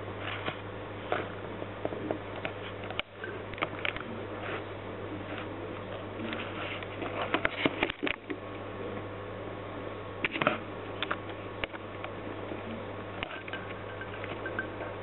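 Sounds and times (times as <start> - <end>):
steady low hum: 0.0 - 15.0
rats clicking and scratching: 0.2 - 8.4, 13.1 - 15.0.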